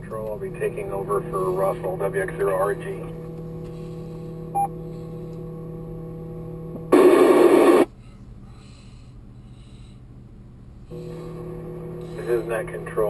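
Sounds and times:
radio channel hum: 0:00.0 - 0:08.0, 0:10.9 - 0:13.0
loud radio static: 0:06.8 - 0:07.9, 0:11.0 - 0:13.0
faint radio hiss: 0:06.9 - 0:07.9, 0:11.0 - 0:13.0
radio squelch tail: 0:06.9 - 0:07.9, 0:11.0 - 0:13.0.

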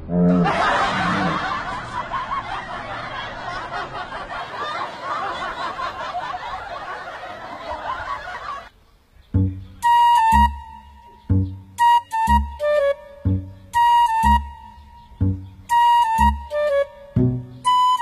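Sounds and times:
crowd laughing: 0:00.3 - 0:08.8.

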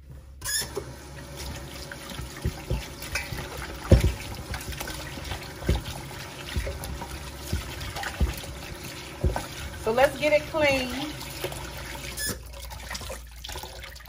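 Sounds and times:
water running from tap: 0:00.6 - 0:14.0
hands rinsing chicken: 0:01.2 - 0:14.0
dull knocks: 0:02.4 - 0:09.8.

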